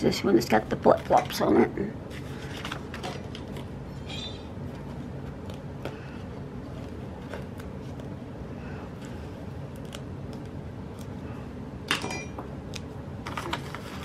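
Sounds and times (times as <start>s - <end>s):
low background hum: 0.0s - 14.0s
paper crackle: 9.0s - 11.2s, 12.7s - 14.0s.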